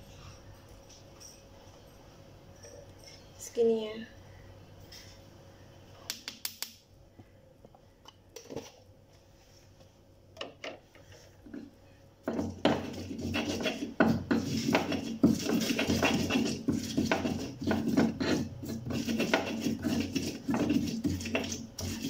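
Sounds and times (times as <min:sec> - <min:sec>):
stone pestle grinding in mortar: 0:12.2 - 0:22.0.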